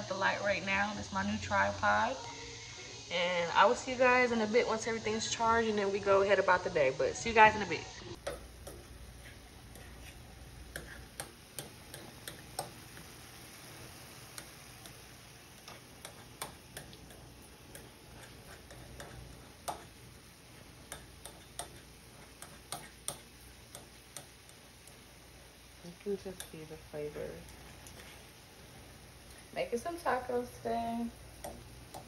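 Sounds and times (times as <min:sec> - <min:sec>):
utensil tapping a frying pan: 0:08.2 - 0:13.2, 0:14.2 - 0:25.0, 0:26.2 - 0:26.8, 0:31.3 - 0:32.0.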